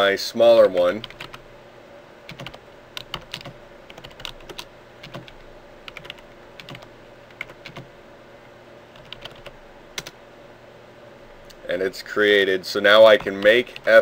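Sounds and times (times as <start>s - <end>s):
keyboard keystrokes clicking: 2.3s - 7.9s, 9.0s - 10.2s.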